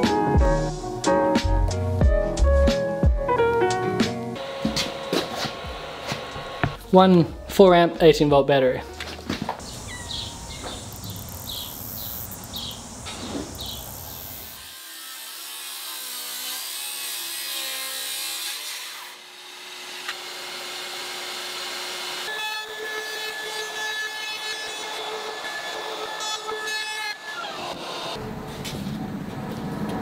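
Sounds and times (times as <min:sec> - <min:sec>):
circular saw cutting wood: 0:04.4 - 0:06.8, 0:13.0 - 0:28.2
trim router whining: 0:04.4 - 0:06.8, 0:19.1 - 0:23.3.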